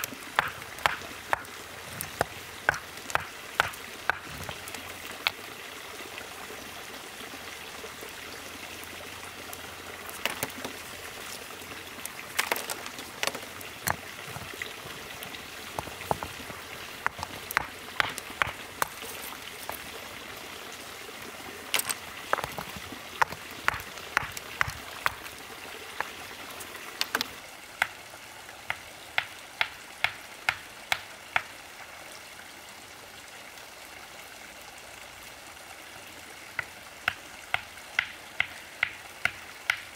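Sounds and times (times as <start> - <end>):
stone knocking on stone: 15.8 - 19.2, 21.8 - 25.3.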